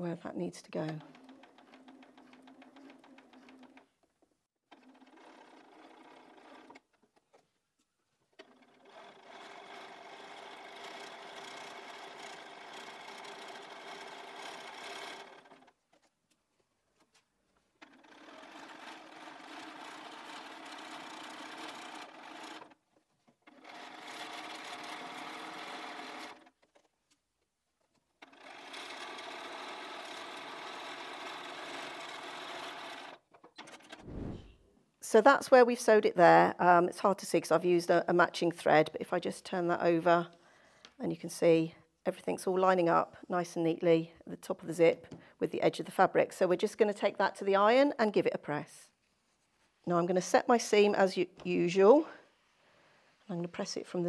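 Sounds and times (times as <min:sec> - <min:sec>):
sewing machine stitching: 0:00.6 - 0:07.5, 0:08.3 - 0:16.1, 0:17.7 - 0:26.9, 0:28.2 - 0:34.6.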